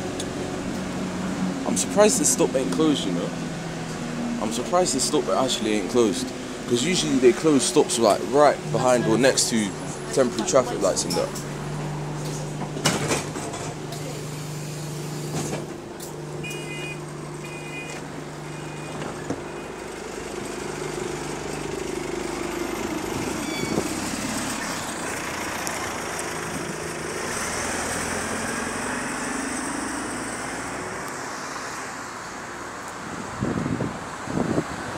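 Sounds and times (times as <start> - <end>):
bus engine: 0.0 - 34.9
high warning beeps: 23.4 - 23.8.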